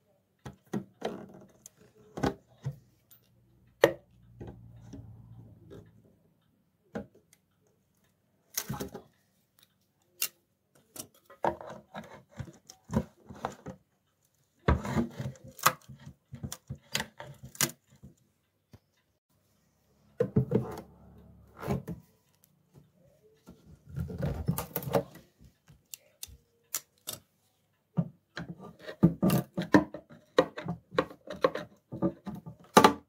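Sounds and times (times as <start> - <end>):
tools prying nails and wood: 14.8 - 18.1, 24.2 - 27.3.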